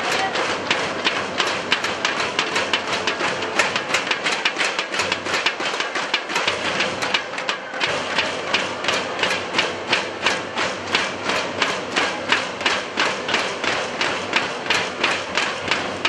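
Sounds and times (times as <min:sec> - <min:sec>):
crowd din: 0:06.4 - 0:14.0.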